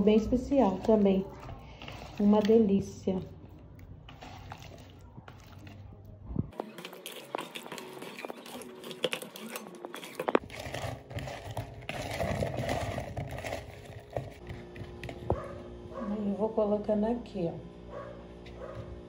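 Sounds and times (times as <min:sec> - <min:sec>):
potato chunks tossed in bowl: 0:06.6 - 0:15.3.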